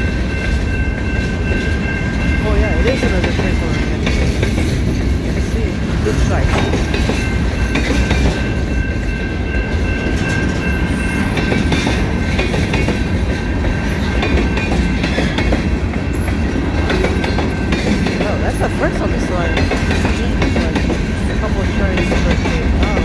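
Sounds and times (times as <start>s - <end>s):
freight train wheels rumbling on rail: 0.0s - 23.0s.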